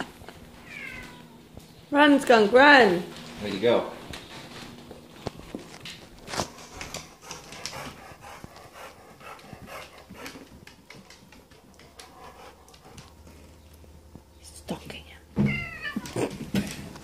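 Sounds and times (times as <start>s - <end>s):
puppy breathing: 6.3s - 13.6s.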